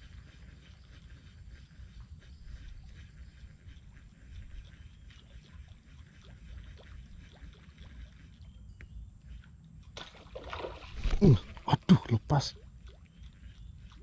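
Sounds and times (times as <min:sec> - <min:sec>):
small ticks: 0:00.0 - 0:10.0, 0:12.8 - 0:14.0
water splashing and trickling: 0:02.2 - 0:08.7, 0:09.3 - 0:14.0.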